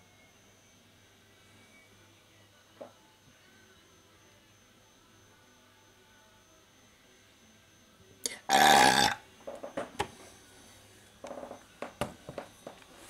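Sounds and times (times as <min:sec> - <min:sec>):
man belching: 0:08.3 - 0:09.2.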